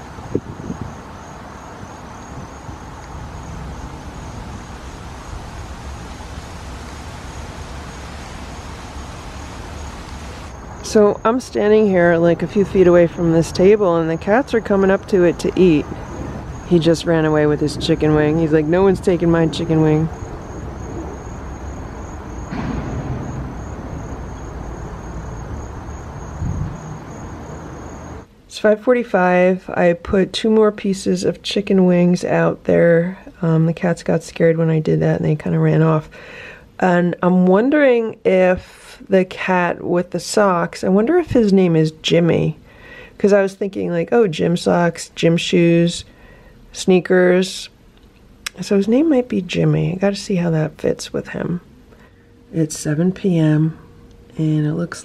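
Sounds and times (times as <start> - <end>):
distant road traffic: 0.0 - 28.3
insect chirping: 0.0 - 28.3.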